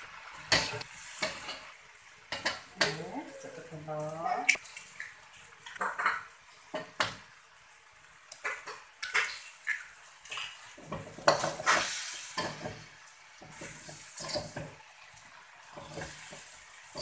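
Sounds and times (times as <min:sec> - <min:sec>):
metal spatula scraping a wok: 0:00.5 - 0:01.7, 0:10.8 - 0:12.8, 0:13.5 - 0:14.6.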